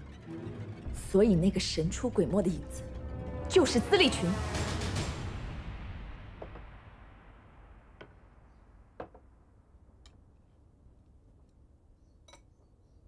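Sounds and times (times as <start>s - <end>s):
porcelain tableware clink: 12.2s - 12.6s.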